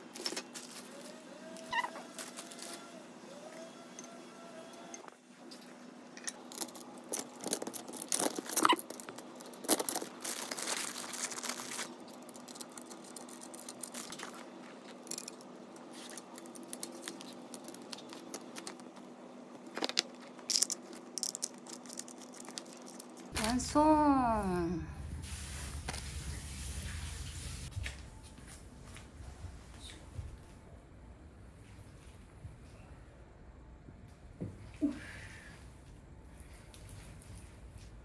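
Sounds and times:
plastic bags crinkling: 0.0s - 2.9s, 6.4s - 23.6s
plastic and metal parts clicking: 6.2s - 19.0s.

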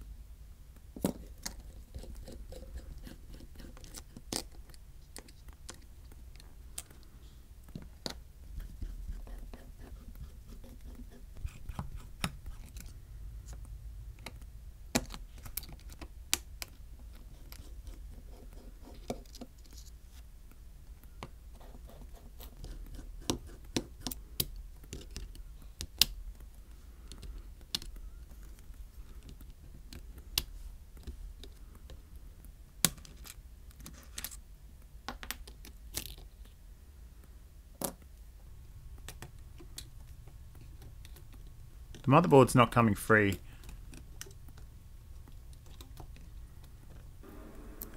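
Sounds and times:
low background hum: 0.0s - 47.9s.

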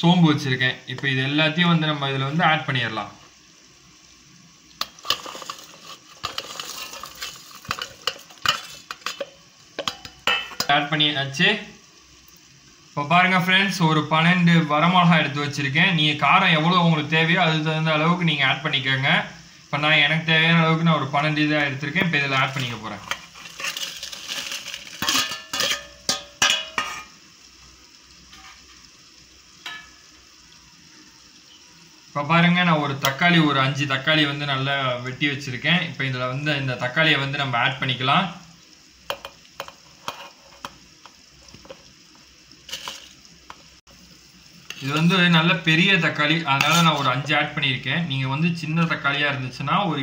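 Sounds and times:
clinks against metal jar: 4.9s - 10.7s, 23.0s - 27.1s, 42.7s - 43.1s
steel spoon scraping colander: 4.9s - 10.7s, 22.4s - 27.2s, 28.3s - 28.8s, 39.9s - 40.8s, 42.7s - 43.2s, 44.6s - 45.4s, 46.5s - 47.3s.

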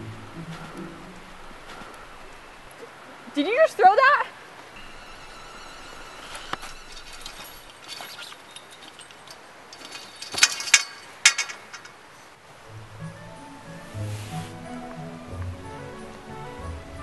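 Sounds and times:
chain-link fence rattling: 4.8s - 12.4s.

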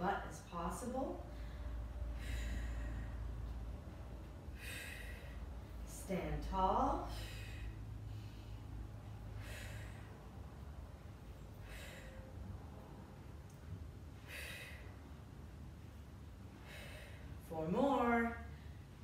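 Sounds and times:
woman breathing hard: 1.2s - 5.9s, 7.1s - 10.7s, 11.3s - 12.8s, 14.0s - 15.6s, 16.4s - 17.4s.

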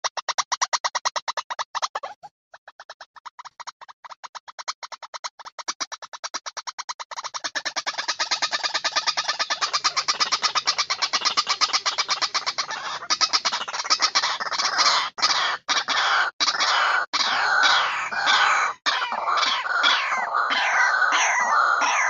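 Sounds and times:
waterhen calling: 7.7s - 22.0s.

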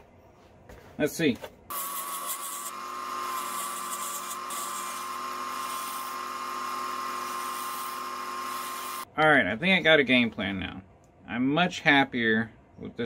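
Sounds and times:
turning tool shaving wood: 1.7s - 9.1s
wood lathe whining: 1.7s - 9.1s.

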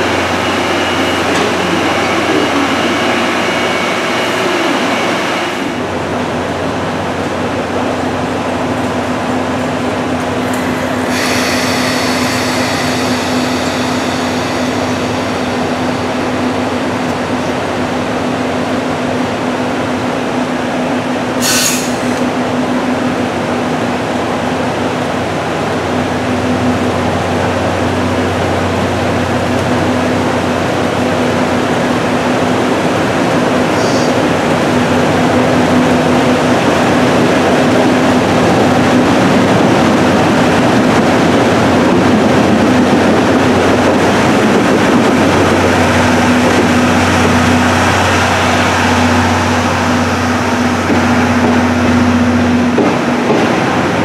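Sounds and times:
electric locomotive humming: 0.0s - 54.0s
short sharp hiss: 21.4s - 22.2s.

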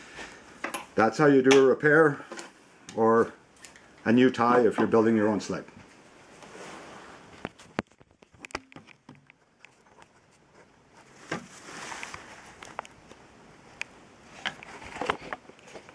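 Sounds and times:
soft rustle: 5.7s - 8.4s, 9.4s - 15.9s.

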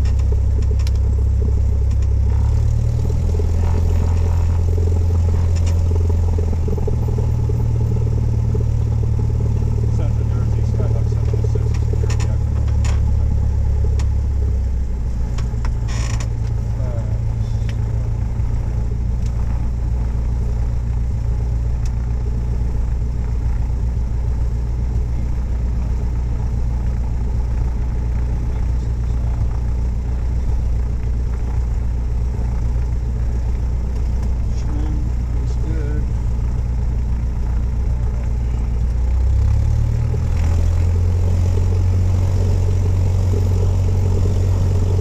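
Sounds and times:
light aircraft engine drone: 0.0s - 45.0s
cabin clicks and creaks: 15.3s - 16.6s.

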